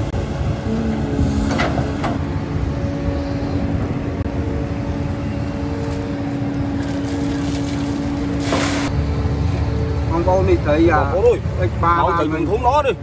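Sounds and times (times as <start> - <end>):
excavator diesel engine rumbling: 0.0 - 13.0.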